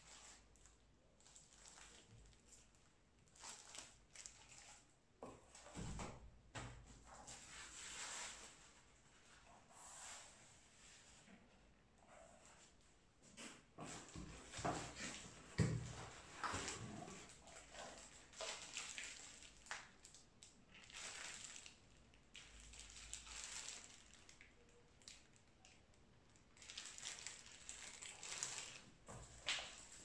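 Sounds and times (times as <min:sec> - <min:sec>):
plastic packaging rustling: 0:00.0 - 0:04.9, 0:16.0 - 0:30.0.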